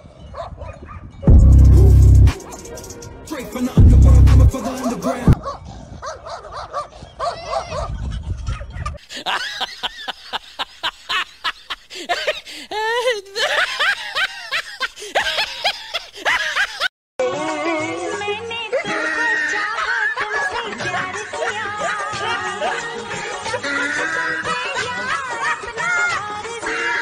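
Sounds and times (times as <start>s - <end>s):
low rumble: 1.3s - 2.4s, 3.7s - 4.5s
animal yelps and barks: 5.4s - 9.0s.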